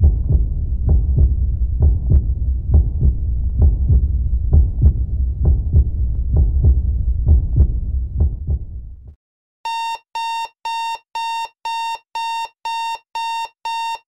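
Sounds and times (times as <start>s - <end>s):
low rumble with dull thumps: 0.0s - 9.2s
alarm clock beeping: 9.7s - 14.0s.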